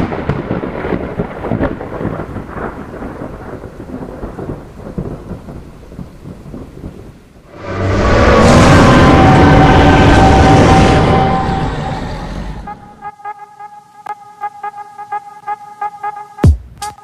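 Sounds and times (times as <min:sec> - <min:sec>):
thunder rolling: 0:00.0 - 0:13.0.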